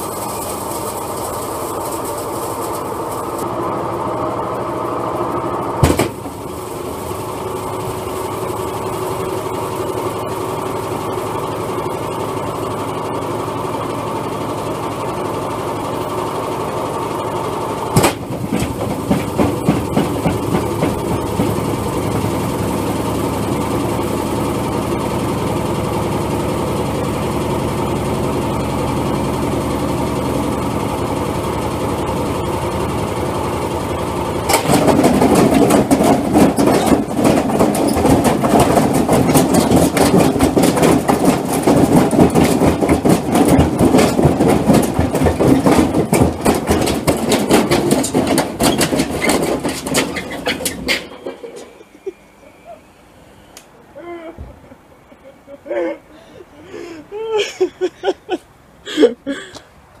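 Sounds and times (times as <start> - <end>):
washing machine spinning: 5.4 - 52.7
loud rapid banging and clattering: 5.8 - 7.4, 17.9 - 23.6, 34.4 - 51.8
uneven knocking: 18.0 - 22.2, 34.5 - 51.5.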